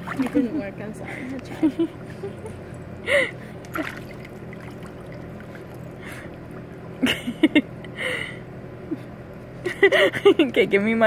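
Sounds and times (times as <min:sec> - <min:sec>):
hot tub pump humming: 0:00.0 - 0:11.0.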